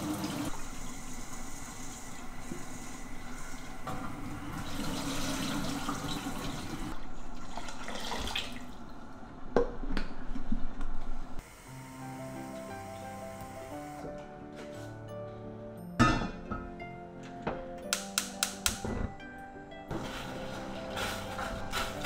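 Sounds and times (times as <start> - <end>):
water running from a tap: 0.0 - 3.7, 4.5 - 8.8
rice being washed in a bowl: 19.9 - 22.0.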